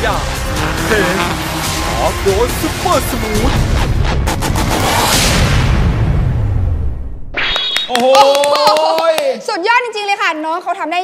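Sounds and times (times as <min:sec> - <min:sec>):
deep rumble: 0:00.4 - 0:07.3
sharp booming hits: 0:03.4 - 0:07.4
whoosh: 0:03.4 - 0:07.9.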